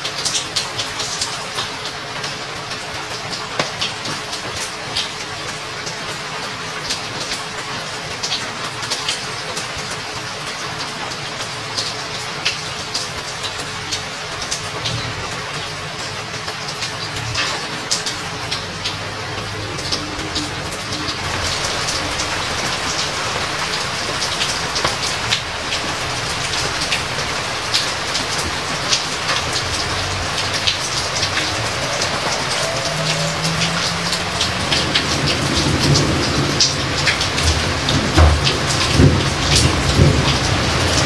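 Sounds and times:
heavy rain: 0:00.0 - 0:41.0
thunder rumbling: 0:17.3 - 0:41.0.

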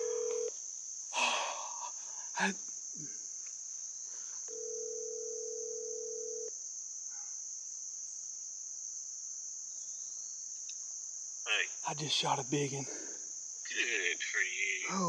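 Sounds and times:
phone ringback tone: 0:00.0 - 0:00.5, 0:04.5 - 0:06.5
insect chorus: 0:00.0 - 0:15.0.

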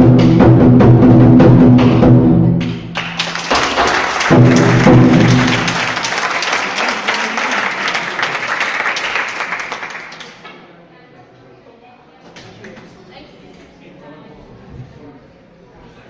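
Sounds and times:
drum-heavy music: 0:00.0 - 0:06.1
audience applause: 0:02.9 - 0:10.4.

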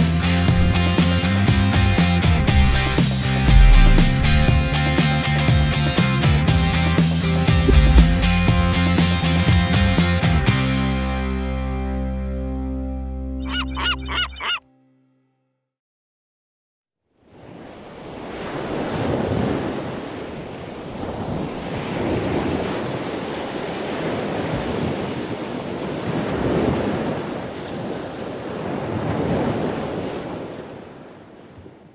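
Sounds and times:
ocean waves washing in: 0:00.3 - 0:01.3, 0:02.0 - 0:05.5, 0:07.2 - 0:09.4, 0:17.2 - 0:31.9.

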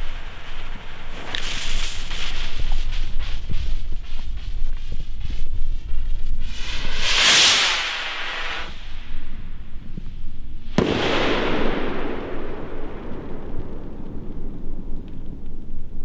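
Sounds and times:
rocket whooshing hiss: 0:00.0 - 0:15.0
firework fizzing sparks: 0:00.0 - 0:15.7
echoing rumble: 0:10.7 - 0:16.0
firework shell bang: 0:10.8 - 0:12.9.

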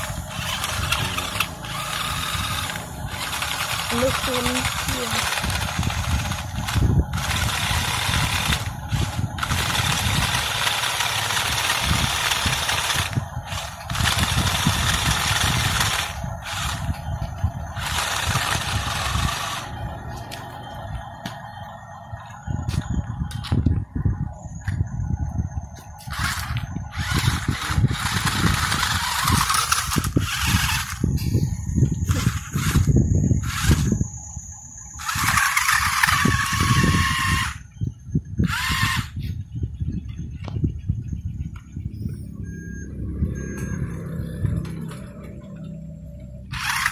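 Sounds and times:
toy car motor whirring: 0:00.0 - 0:19.8, 0:26.0 - 0:37.7, 0:38.4 - 0:39.4, 0:46.5 - 0:46.9
uneven low rumble: 0:05.2 - 0:36.9.

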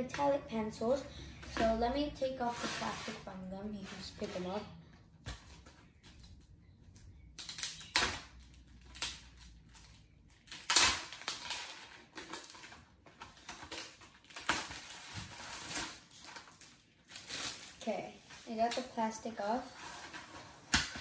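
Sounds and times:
plastic wrapping crinkling: 0:07.4 - 0:21.0.

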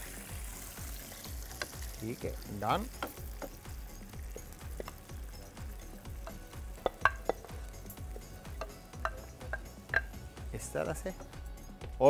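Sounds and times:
sauce sizzling and bubbling in a pan: 0:00.0 - 0:11.7
spoon clinking against pan: 0:06.2 - 0:10.3.

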